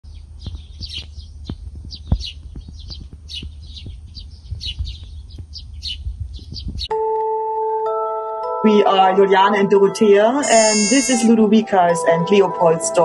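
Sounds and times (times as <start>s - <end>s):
low rumble: 0.0s - 6.9s
small birds chirping: 0.0s - 6.9s, 10.4s - 11.3s.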